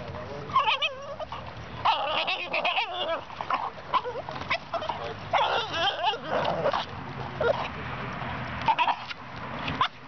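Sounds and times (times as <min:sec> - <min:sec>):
dog whining: 0:00.5 - 0:06.8.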